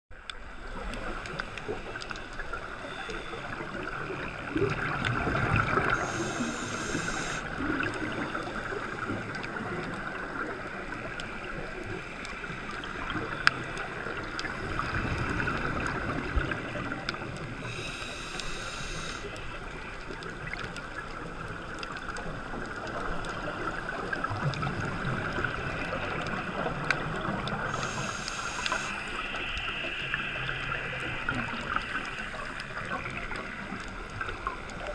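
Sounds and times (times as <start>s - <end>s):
regulator inhalation hisses: 5.8s - 9.2s, 17.6s - 19.6s, 27.6s - 31.0s.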